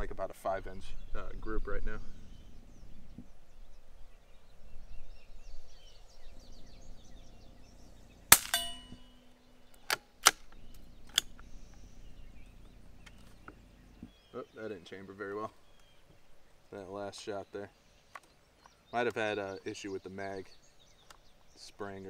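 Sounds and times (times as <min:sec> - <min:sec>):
rifle bolt clicks: 0:08.3 - 0:09.0, 0:09.8 - 0:11.5
rifle shot crack: 0:08.3 - 0:09.0
steel target ringing: 0:08.3 - 0:09.3.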